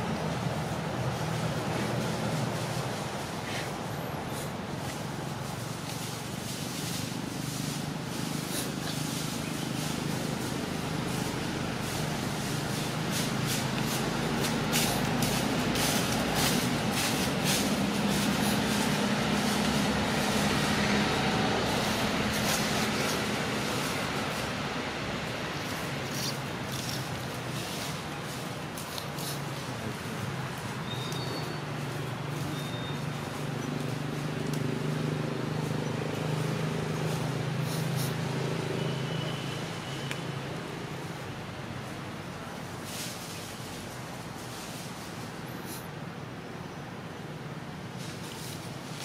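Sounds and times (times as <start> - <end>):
rushing noise: 0.0 - 33.1
background hiss: 0.0 - 49.0
engine humming: 0.0 - 49.0.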